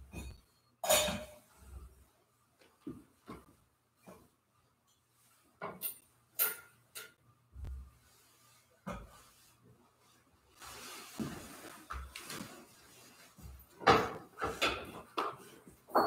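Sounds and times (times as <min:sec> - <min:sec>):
objects knocking and clunking: 0:02.6 - 0:04.4, 0:05.5 - 0:07.8, 0:13.4 - 0:16.0.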